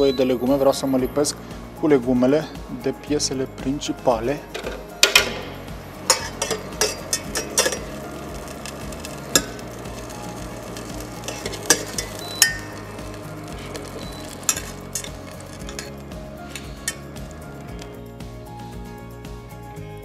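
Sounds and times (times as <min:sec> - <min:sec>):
utensil scraping in saucepan: 0:04.5 - 0:17.4.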